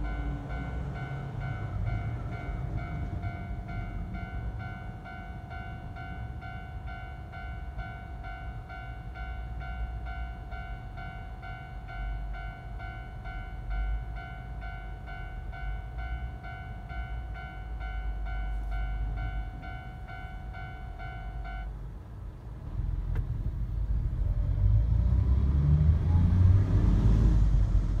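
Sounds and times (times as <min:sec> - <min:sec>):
crossing warning bell dinging: 0:00.0 - 0:22.4
heavy road traffic rumble: 0:00.0 - 0:28.0.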